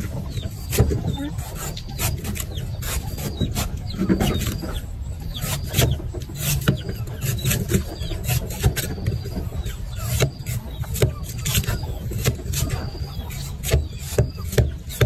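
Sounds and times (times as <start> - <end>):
knife chopping coconut husk: 0.6 - 3.8, 10.0 - 12.8, 13.4 - 15.0.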